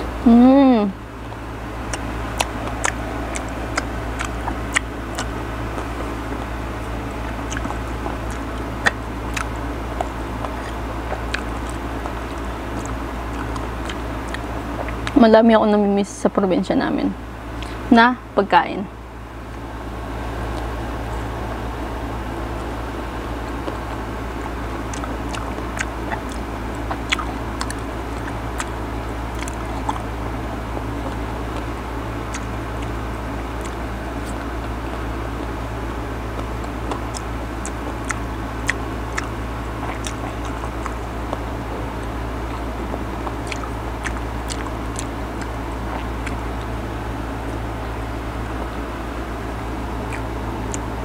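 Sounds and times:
biting and chewing mango: 0:00.0 - 0:15.2, 0:19.1 - 0:51.0
steady low hum: 0:00.0 - 0:51.0.

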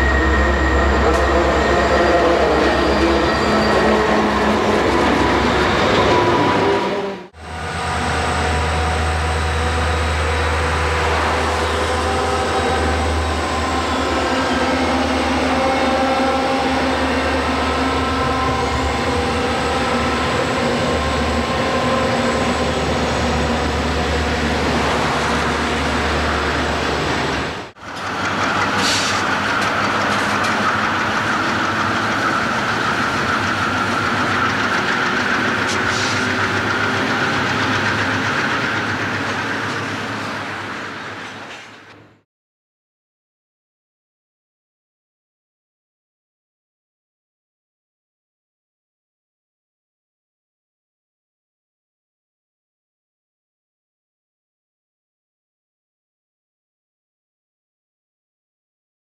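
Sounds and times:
train wheels rolling on rails: 0:00.0 - 0:42.1
diesel locomotive engine drone: 0:00.0 - 0:42.2.

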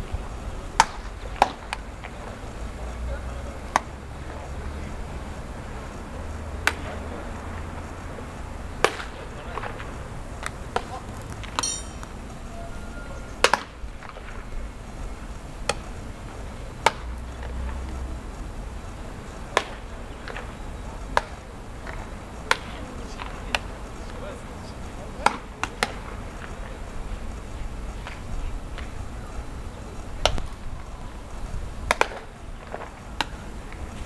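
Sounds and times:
baseballs smacking into gloves: 0:00.8 - 0:02.2, 0:08.8 - 0:09.7, 0:19.5 - 0:20.4, 0:21.1 - 0:23.4, 0:31.9 - 0:33.4
high ringing ping: 0:11.6 - 0:12.2.

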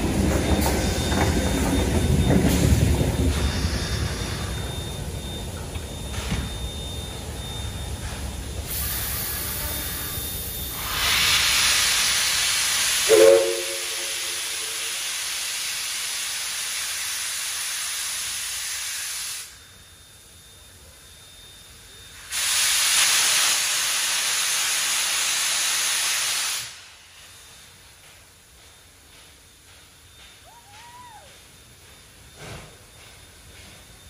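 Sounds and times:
steam locomotive venting steam: 0:00.0 - 0:19.8, 0:20.7 - 0:34.0
steam whistle toot: 0:08.7 - 0:15.2.

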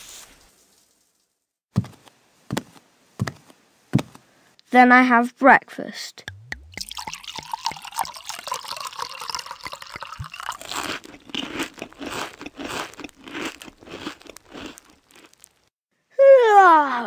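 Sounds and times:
milk pouring into bowl: 0:06.6 - 0:11.3
cereal crunching: 0:08.6 - 0:15.7.

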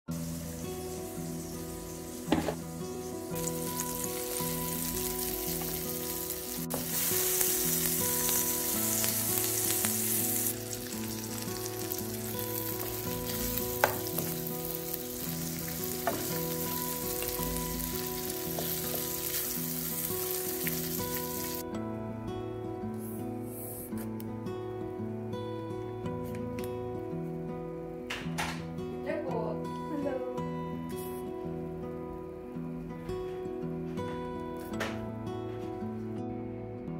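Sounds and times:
food sizzling in a frying pan: 0:00.1 - 0:21.6
utensil tapping a pan: 0:02.2 - 0:02.7, 0:13.3 - 0:14.3, 0:16.0 - 0:16.6.

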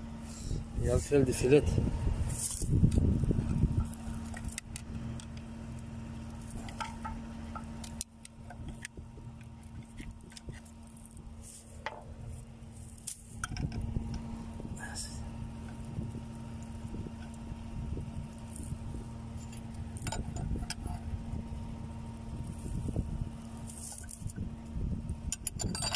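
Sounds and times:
steady low hum: 0:00.0 - 0:25.9
screwdriver clicking and scraping metal: 0:06.4 - 0:12.0, 0:19.4 - 0:21.0, 0:25.3 - 0:25.9.

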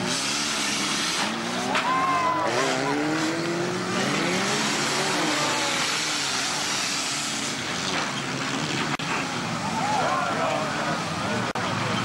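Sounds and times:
engine revving: 0:00.0 - 0:09.3
rush of racing car engines: 0:00.0 - 0:12.0.

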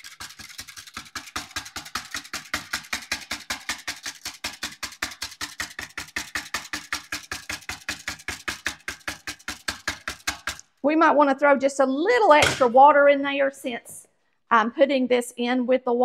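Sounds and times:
whisk clattering in metal can: 0:00.0 - 0:10.7.

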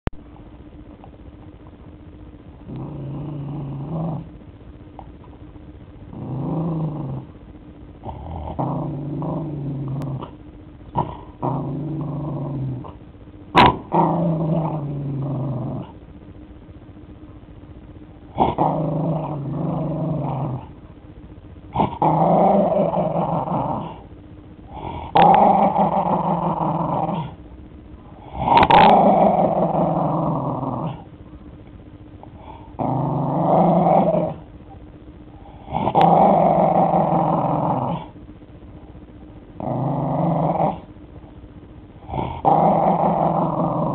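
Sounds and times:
dog growling: 0:02.6 - 0:04.4, 0:06.1 - 0:07.4, 0:08.0 - 0:16.0, 0:18.2 - 0:20.9, 0:21.7 - 0:27.4, 0:28.1 - 0:31.2, 0:32.2 - 0:34.8, 0:35.4 - 0:38.2, 0:39.5 - 0:40.9, 0:42.0 - 0:43.9.

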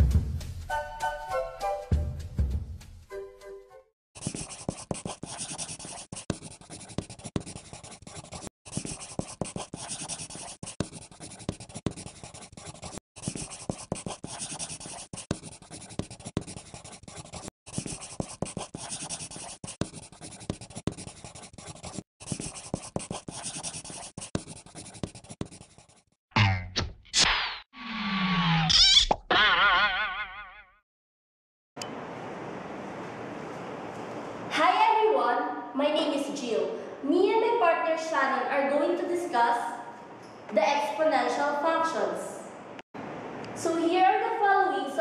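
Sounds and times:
pen scratching on paper: 0:04.2 - 0:26.2.

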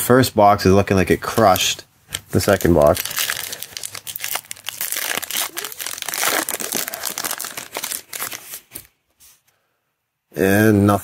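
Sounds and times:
foil wrapper crinkling: 0:02.4 - 0:08.9.

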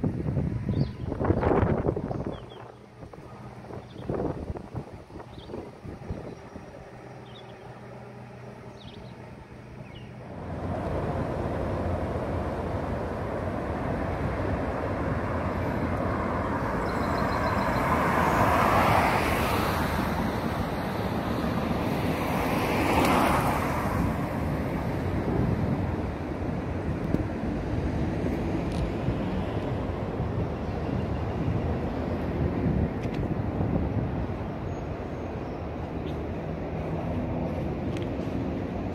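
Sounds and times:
cars passing: 0:00.0 - 0:38.9
tyre noise of traffic: 0:00.0 - 0:38.9.

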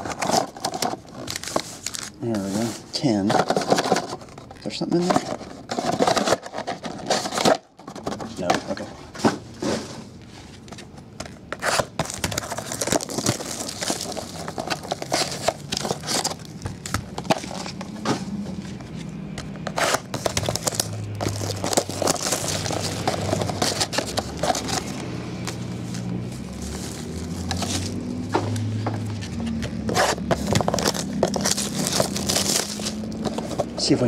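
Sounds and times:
foil wrappers crinkling: 0:00.0 - 0:08.8, 0:11.6 - 0:17.8, 0:19.8 - 0:28.0, 0:29.9 - 0:34.0.

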